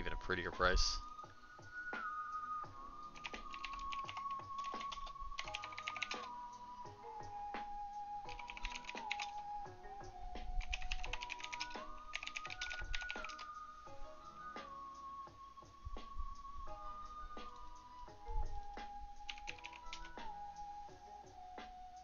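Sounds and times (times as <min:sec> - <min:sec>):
background music: 0:00.0 - 0:22.0
keyboard typing clicks: 0:03.2 - 0:06.3, 0:08.3 - 0:09.4, 0:10.6 - 0:13.5, 0:19.3 - 0:20.2.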